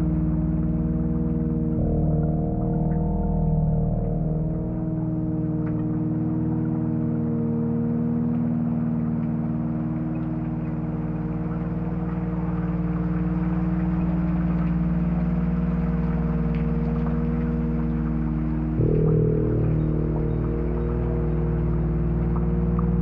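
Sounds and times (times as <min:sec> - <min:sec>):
low rumble: 0:00.0 - 0:23.0
sustained synthesizer tones: 0:00.0 - 0:23.0
rain hiss with faint ticks: 0:05.1 - 0:07.6, 0:08.2 - 0:23.0.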